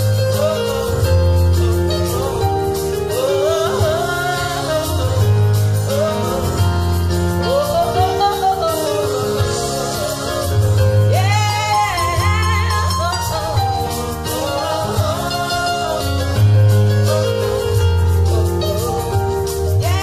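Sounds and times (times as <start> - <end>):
electronic keyboard accompaniment: 0.0 - 20.0
woman singing into a microphone: 3.1 - 6.6, 7.4 - 16.5, 19.7 - 20.0.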